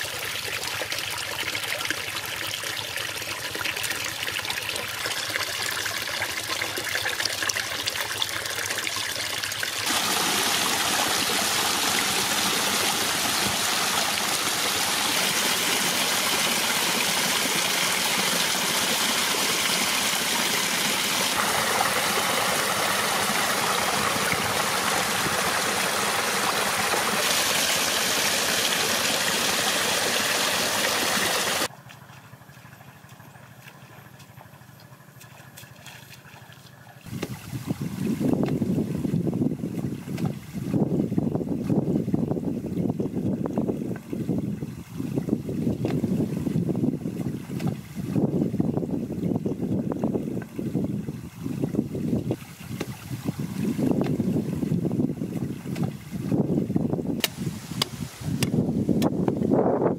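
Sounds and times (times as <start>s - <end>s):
water splashing into pool: 0.0s - 34.2s, 35.2s - 40.8s.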